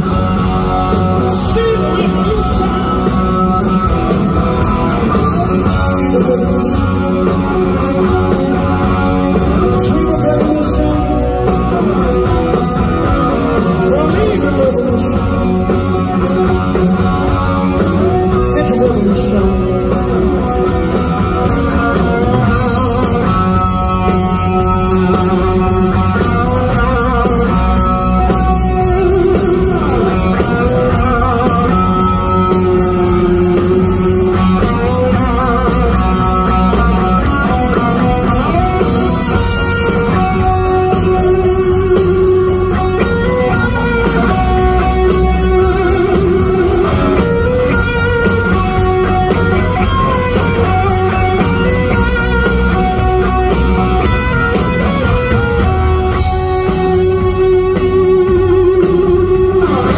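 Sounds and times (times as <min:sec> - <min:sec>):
electric guitar melody: 0:00.0 - 0:59.9
live rock band playing: 0:00.0 - 0:59.9.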